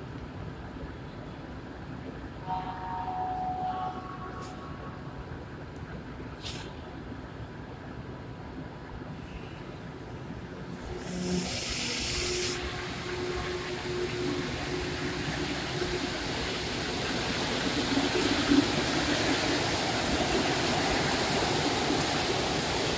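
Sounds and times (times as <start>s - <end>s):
metro train rolling: 0.0s - 22.9s
brief hiss: 6.4s - 6.9s.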